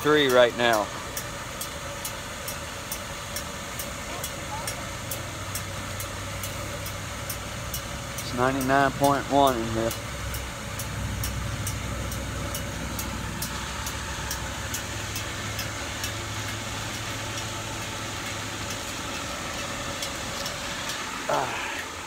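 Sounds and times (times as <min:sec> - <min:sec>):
blower fan whirring: 0:00.0 - 0:22.0
light ticks: 0:00.2 - 0:21.0
low hum: 0:09.6 - 0:22.0.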